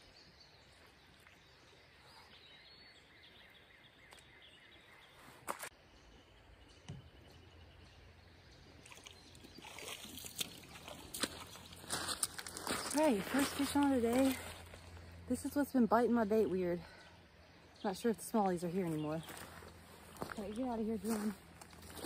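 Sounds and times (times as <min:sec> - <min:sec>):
faint outdoor background: 0:00.0 - 0:22.0.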